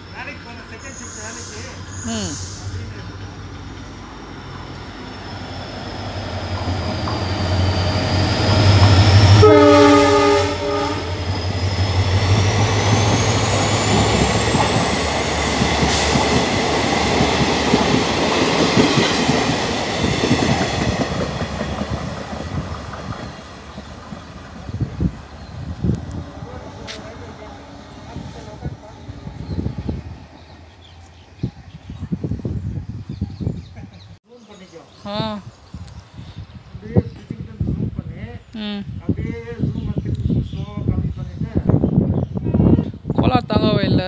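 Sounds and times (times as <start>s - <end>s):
passing train rumble: 0.0s - 44.0s
train horn: 9.1s - 11.4s.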